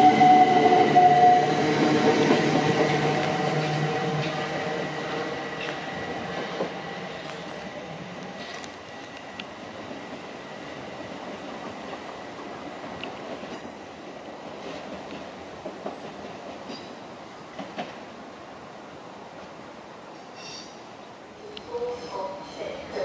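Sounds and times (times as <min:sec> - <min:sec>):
train wheel-on-rail noise: 0:00.0 - 0:23.0
wheels clicking over rail joints: 0:11.1 - 0:13.8, 0:14.4 - 0:18.1.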